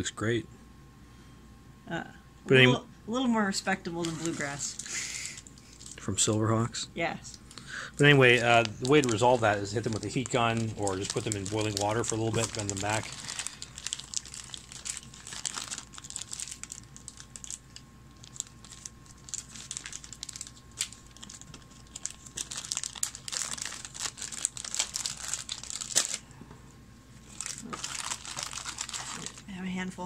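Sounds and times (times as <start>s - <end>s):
plastic bags crinkling: 3.9s - 6.1s, 7.4s - 26.3s, 27.2s - 29.5s.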